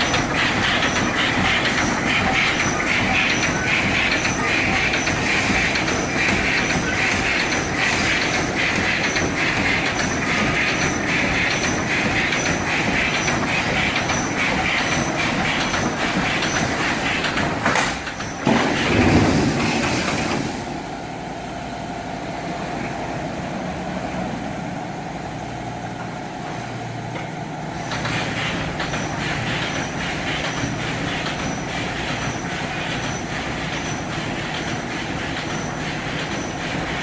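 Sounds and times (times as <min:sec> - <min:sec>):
machine clacking: 0:00.0 - 0:20.6, 0:27.8 - 0:37.0
machine clunk: 0:00.0 - 0:20.7.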